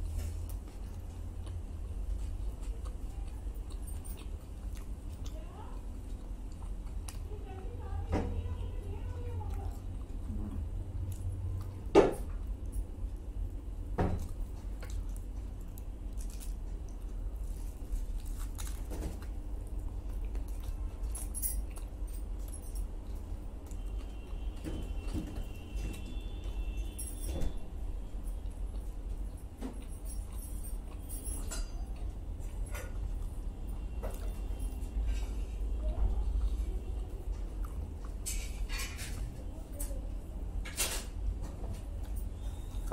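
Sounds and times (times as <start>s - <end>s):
biting food: 0.0s - 7.8s, 9.1s - 25.4s
close-up chewing: 0.0s - 27.2s, 27.8s - 40.3s
steady low hum: 0.0s - 42.9s.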